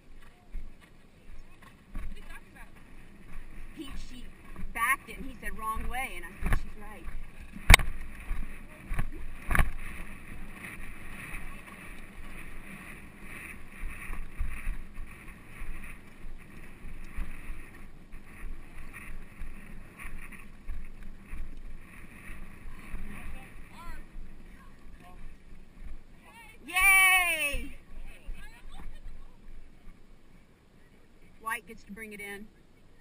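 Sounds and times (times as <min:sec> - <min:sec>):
horse movement rumbling: 0:00.0 - 0:27.0
wind on microphone: 0:00.0 - 0:30.3.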